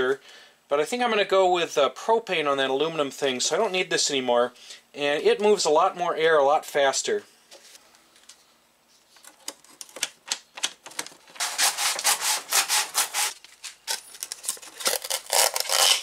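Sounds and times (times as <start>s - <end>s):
scissors cutting foam board: 11.4s - 13.4s, 14.6s - 16.0s.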